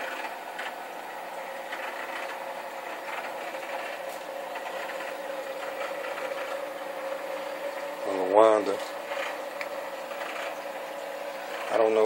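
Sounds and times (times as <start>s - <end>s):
aquarium equipment humming: 0.0s - 12.0s.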